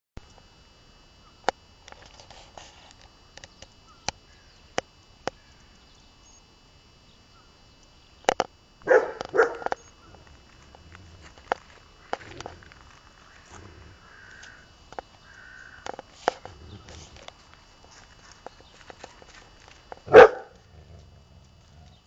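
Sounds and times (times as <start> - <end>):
dogs barking: 8.8 - 10.8, 20.1 - 20.7.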